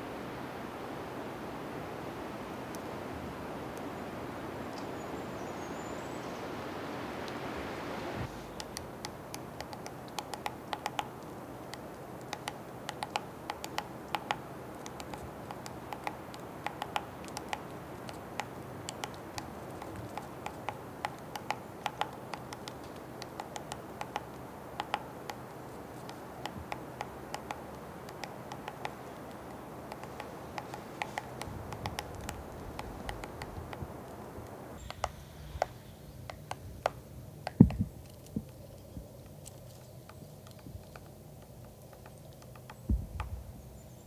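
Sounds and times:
woodpecker pecking on wood: 8.5 - 43.4.

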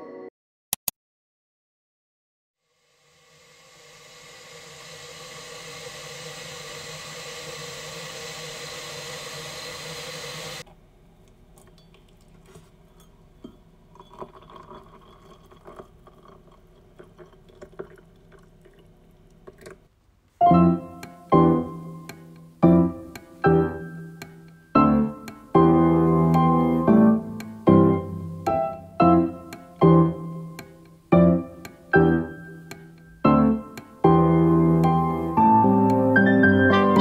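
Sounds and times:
hot water pouring into mug: 2.8 - 10.6, 13.8 - 19.9
piano music: 20.4 - 37.0.

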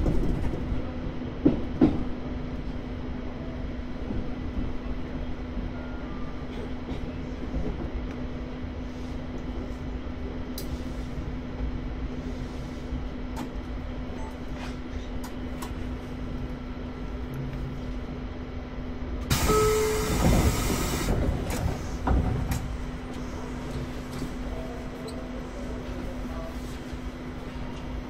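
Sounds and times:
train wheels rumbling on rails: 0.0 - 2.8, 6.4 - 13.9, 19.2 - 28.0.

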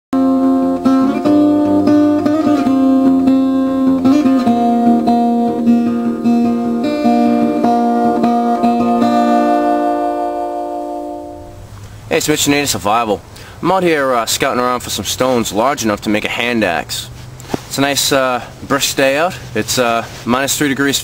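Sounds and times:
acoustic guitar melody: 0.2 - 12.0.

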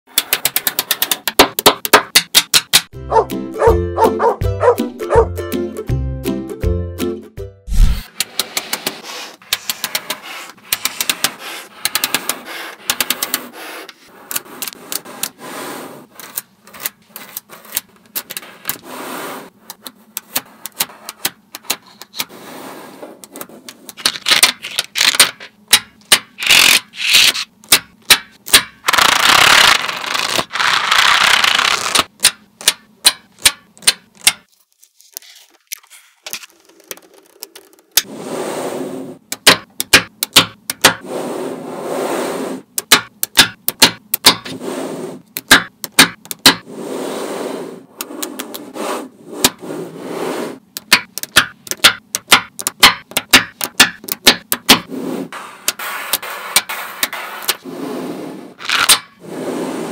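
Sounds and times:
magnetic balls clicking: 0.1 - 2.9, 36.5 - 38.1, 39.3 - 41.0, 42.7 - 44.5, 45.3 - 46.6, 50.7 - 54.9
magnetic balls rattling and scraping: 7.8 - 27.5, 35.8 - 59.9.

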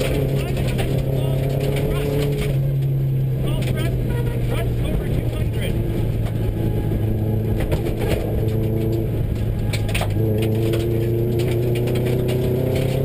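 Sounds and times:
car engine under load: 0.0 - 13.0.

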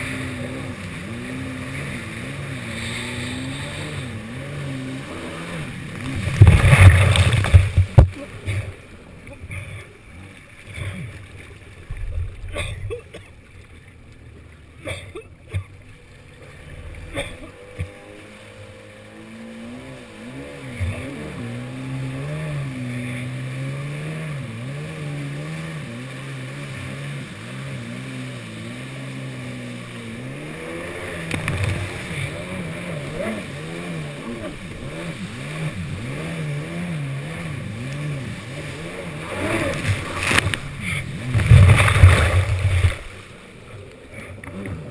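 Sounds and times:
jet ski engine: 0.0 - 44.9
water sloshing and splashing: 0.0 - 44.9.

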